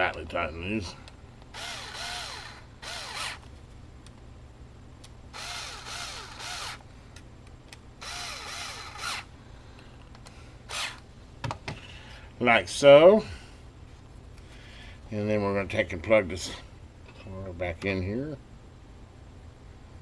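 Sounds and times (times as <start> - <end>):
cordless screwdriver whining: 1.5 - 3.4, 5.4 - 6.8, 8.0 - 9.3, 10.7 - 11.0.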